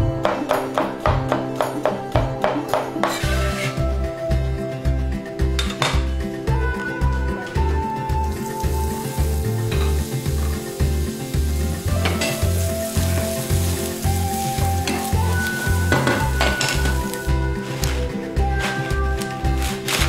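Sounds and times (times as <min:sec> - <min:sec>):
background music with steady beat: 0:00.0 - 0:20.0
wooden spatula scraping pan: 0:03.1 - 0:03.8
ginger sizzling in hot oil: 0:08.3 - 0:18.9.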